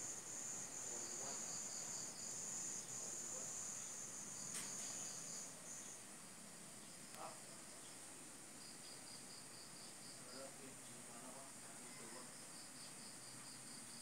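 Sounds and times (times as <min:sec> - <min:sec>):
faint pulsing insect chirp: 0:00.0 - 0:14.0
insects trilling: 0:00.0 - 0:14.0.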